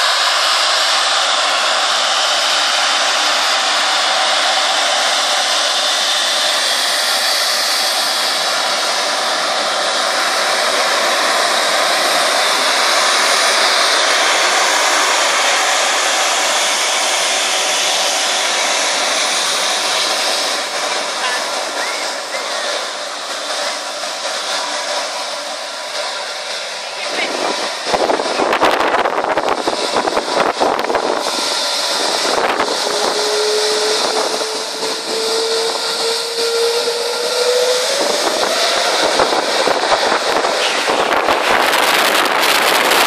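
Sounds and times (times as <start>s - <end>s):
jet engines at high power: 0.0s - 43.0s
jet blast rushing over microphone: 26.8s - 43.0s.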